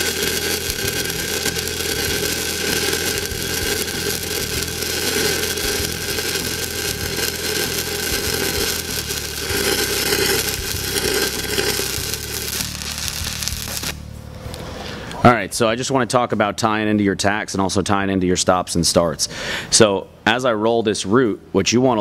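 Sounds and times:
welding arc crackle: 0.0 - 14.7.

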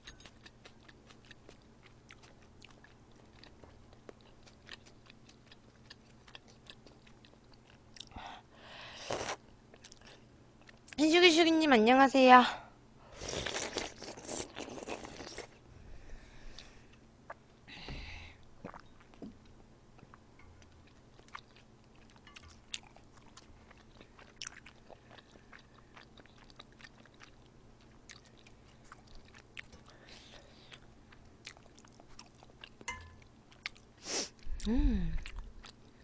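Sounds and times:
chewing and slurping noodles: 13.2 - 15.6, 18.6 - 19.2.

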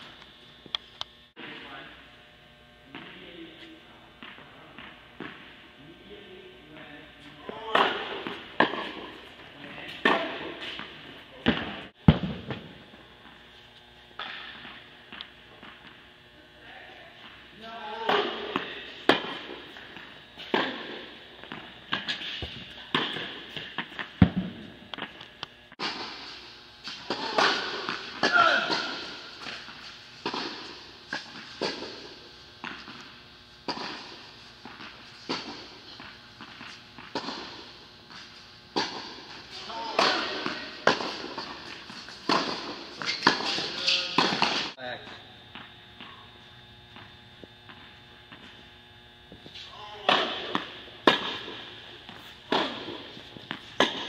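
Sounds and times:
racket hitting tennis ball: 7.5 - 9.3, 9.9 - 12.6, 18.0 - 24.6, 25.8 - 44.8, 49.6 - 54.0
tennis ball bouncing: 7.5 - 9.3, 18.0 - 24.5, 33.6 - 37.7, 38.7 - 44.7, 50.0 - 54.0.

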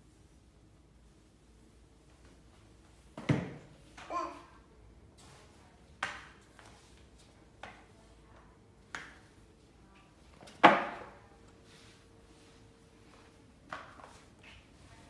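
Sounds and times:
mop knocking on hardwood floor: 3.1 - 4.1, 10.3 - 12.0, 13.1 - 14.6.

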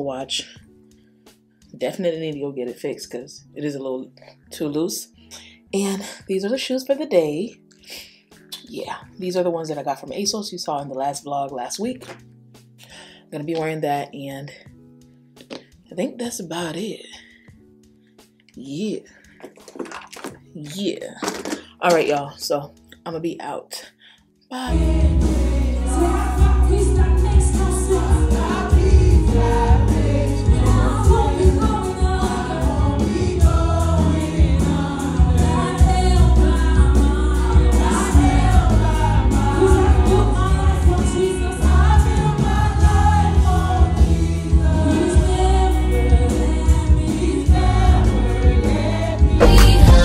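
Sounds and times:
gospel choir singing: 24.6 - 50.0
heavy bass line: 24.7 - 31.7, 49.2 - 50.0.

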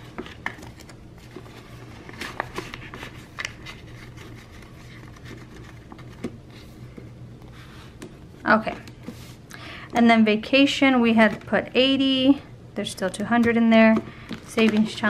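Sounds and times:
paper and plastic rustling: 0.0 - 9.4, 13.8 - 15.0.

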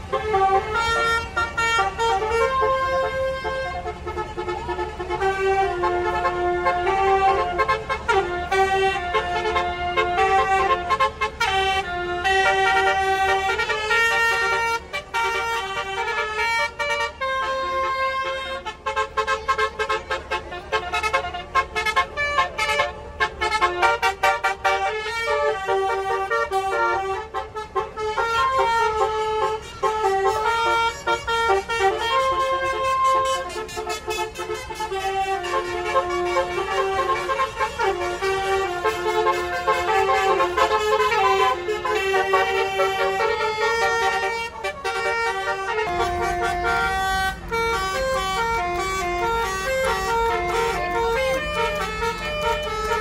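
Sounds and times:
musical bus horn playing tune: 0.0 - 53.0.

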